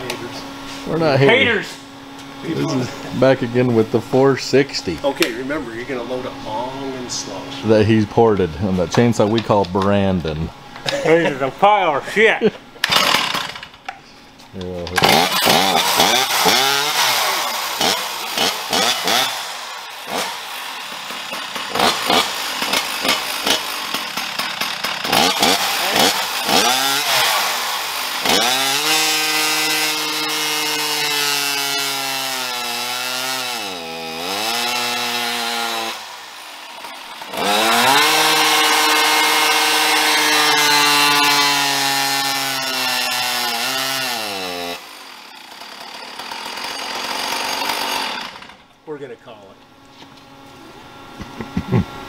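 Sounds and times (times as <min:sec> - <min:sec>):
chainsaw revving: 0:12.8 - 0:13.8, 0:14.8 - 0:48.7.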